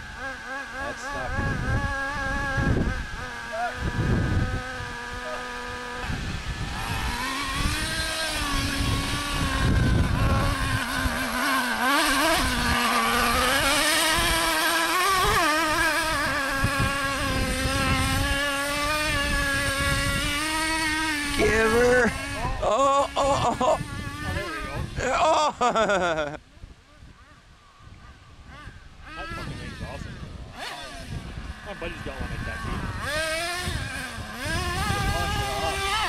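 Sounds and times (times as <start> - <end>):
small two-stroke engine buzzing: 0.0 - 36.0.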